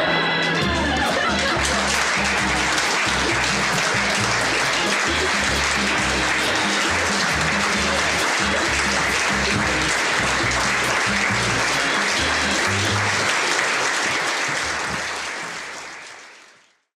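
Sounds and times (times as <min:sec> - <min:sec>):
audience applauding: 0:00.0 - 0:16.9
music with stepping bass line: 0:00.6 - 0:13.2.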